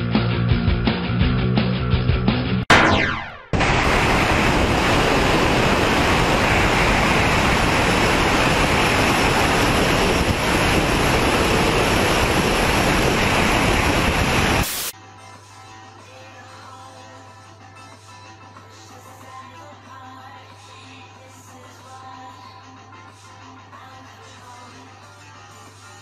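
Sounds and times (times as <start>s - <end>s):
wind rushing over microphone: 3.6s - 14.9s.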